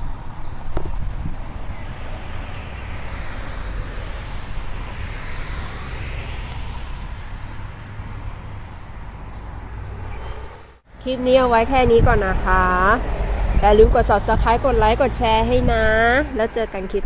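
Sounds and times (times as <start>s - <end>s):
wind rumbling on microphone: 0.0s - 17.0s
rushing noise: 1.2s - 8.4s.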